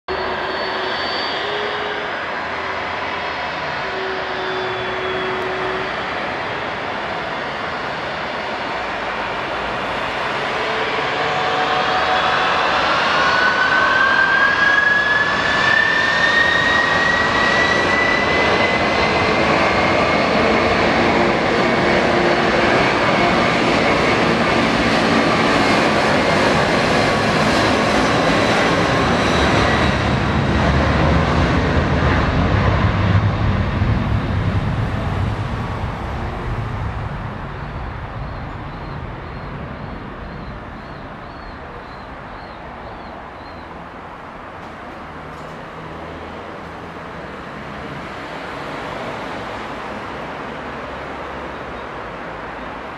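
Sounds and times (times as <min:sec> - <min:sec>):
jet engine roaring: 0:00.1 - 0:44.2
jet engine whine: 0:00.1 - 0:52.9.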